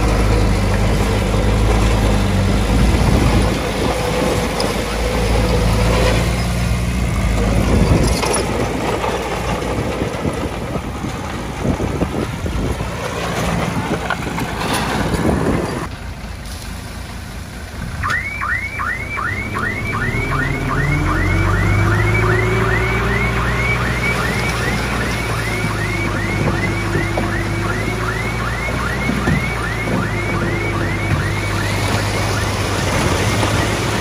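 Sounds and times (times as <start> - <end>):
heavy diesel machinery: 0.0 - 34.0
truck engine revving: 0.0 - 34.0
electronic chirping alarm: 18.0 - 32.9.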